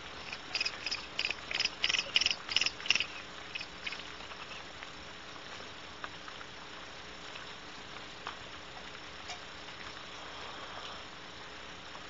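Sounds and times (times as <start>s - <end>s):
barn owl chirping calls: 0.2s - 4.6s.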